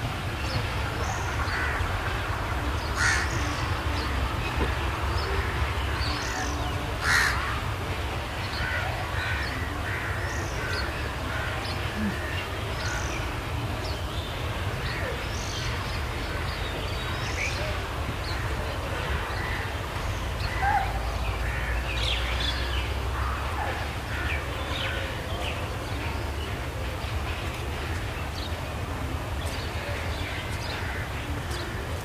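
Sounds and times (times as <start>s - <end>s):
crows cawing: 3.0s - 3.4s, 7.0s - 7.6s.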